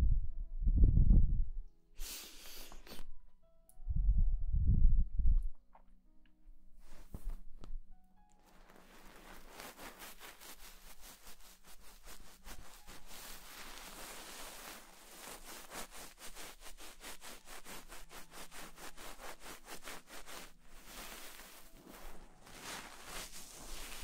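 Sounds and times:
faux fur rubbing against microphone: 6.8 - 7.7, 8.4 - 24.0.

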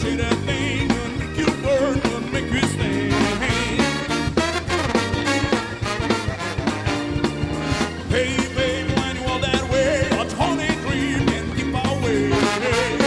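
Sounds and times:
person singing: 0.0 - 4.2, 8.0 - 13.0
live rock band playing: 0.0 - 13.0.

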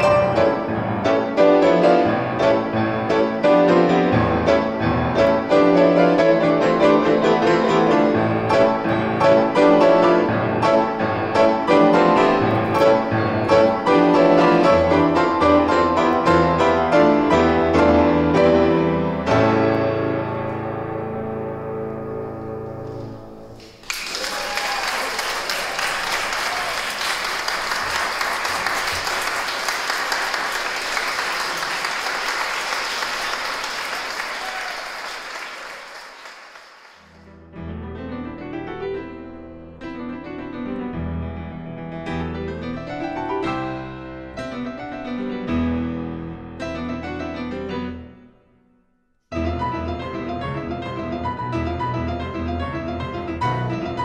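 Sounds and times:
piano music: 0.0 - 23.9, 37.0 - 48.6, 49.3 - 54.0
audience applauding: 23.6 - 37.3.

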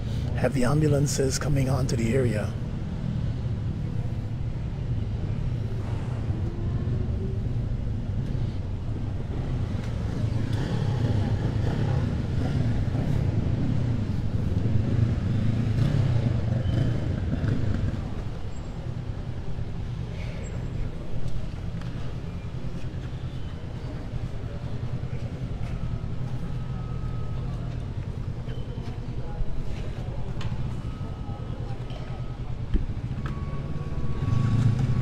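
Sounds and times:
vehicle engines rumbling: 0.0 - 35.0
faint crowd chatter: 19.7 - 35.0.

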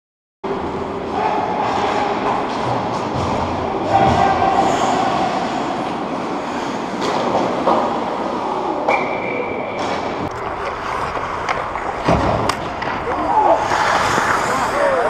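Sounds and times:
hockey sticks and puck clicking: 9.8 - 14.8
skates scraping on ice: 10.2 - 15.0.

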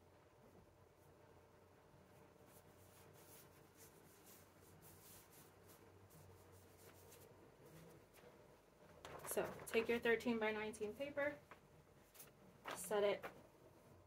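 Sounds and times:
low steady hum: 0.0 - 14.0
rustling of paper and cloth: 2.1 - 10.4, 11.1 - 13.6.

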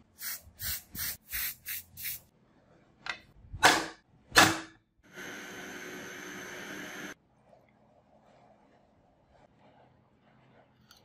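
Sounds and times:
aerosol spray can hissing: 0.2 - 2.3.

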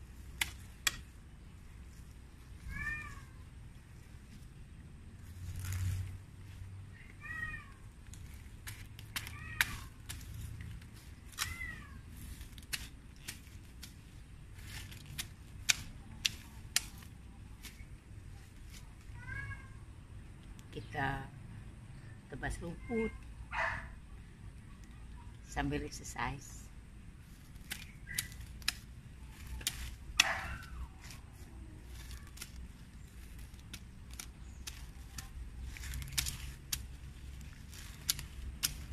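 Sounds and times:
dry grass being pulled: 0.0 - 19.2, 26.4 - 38.9
sickle hacking weeds and soil: 0.0 - 19.3, 25.4 - 38.9
cat meowing: 2.6 - 3.4, 7.2 - 7.8, 19.2 - 19.8.

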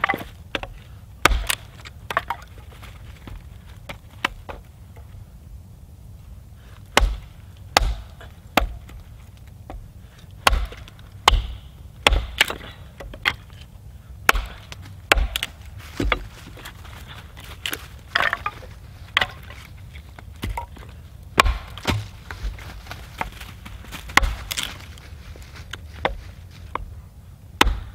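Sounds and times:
hatchet chopping wood: 0.0 - 2.7, 6.9 - 9.8, 10.4 - 13.6, 14.2 - 19.6, 20.2 - 24.8, 26.0 - 26.9, 27.6 - 27.9
wood splitting crackle: 0.0 - 5.2, 6.7 - 26.9, 27.6 - 27.9.

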